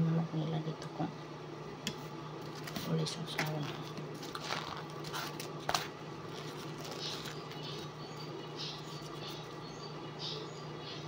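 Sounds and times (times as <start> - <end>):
steady low hum: 0.0 - 11.0
flatbread tearing: 3.7 - 7.9.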